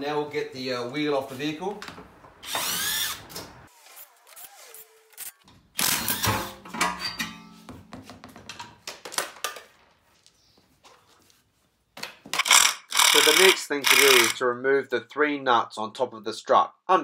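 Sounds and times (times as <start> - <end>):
impact wrench whirring: 2.4 - 6.5, 12.4 - 14.4.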